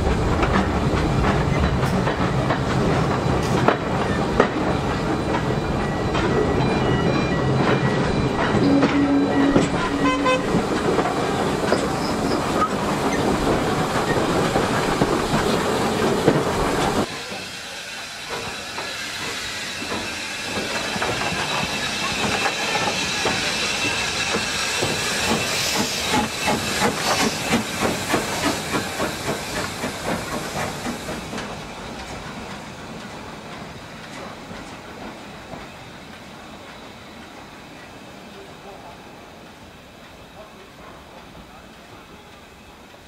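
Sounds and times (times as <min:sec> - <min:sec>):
railway carriage running on rails: 0:00.0 - 0:43.0
steam hissing: 0:00.0 - 0:43.0
steam locomotive exhaust chuffs: 0:07.4 - 0:37.5.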